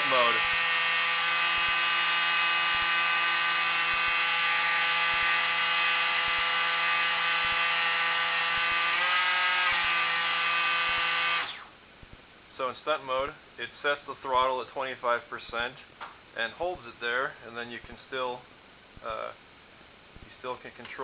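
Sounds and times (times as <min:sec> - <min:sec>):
electric motor and propeller whine: 0:00.0 - 0:11.8.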